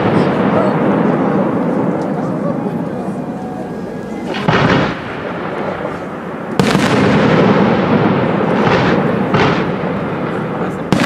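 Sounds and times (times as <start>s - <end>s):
firework shells bursting: 0.9s - 11.0s.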